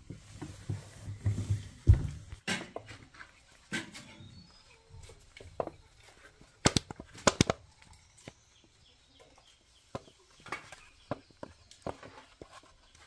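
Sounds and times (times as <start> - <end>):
dried gourds knocking together: 5.3 - 8.4.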